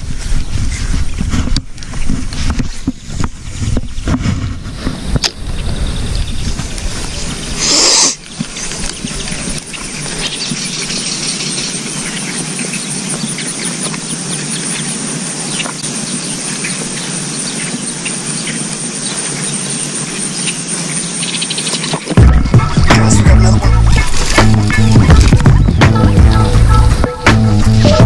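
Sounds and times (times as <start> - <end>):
birds singing: 0.0 - 4.2, 4.8 - 28.0
insects chirping: 5.4 - 28.0
loud music: 22.2 - 28.0.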